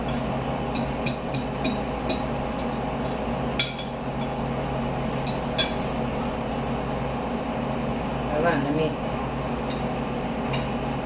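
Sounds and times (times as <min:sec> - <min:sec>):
forks clinking on plates: 0:04.8 - 0:06.8.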